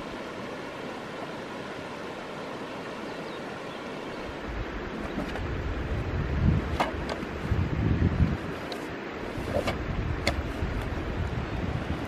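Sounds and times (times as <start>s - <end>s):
stream rushing over rocks: 0.0s - 12.0s
wind buffeting microphone: 4.2s - 12.0s.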